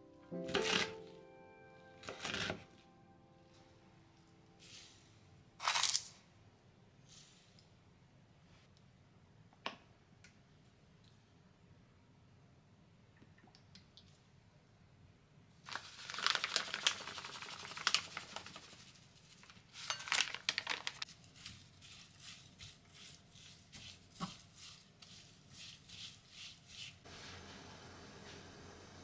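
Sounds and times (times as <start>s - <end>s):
food packet crinkling: 5.6s - 6.2s, 15.7s - 22.5s.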